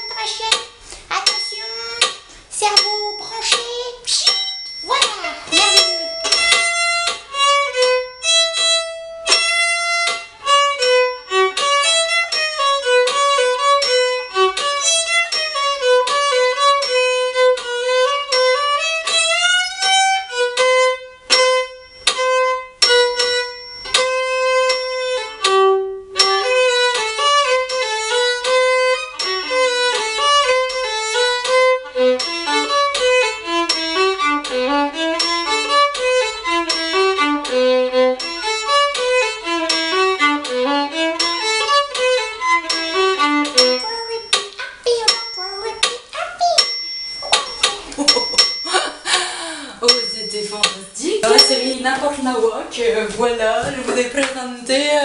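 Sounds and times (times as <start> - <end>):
solo violin melody: 5.4 - 45.8.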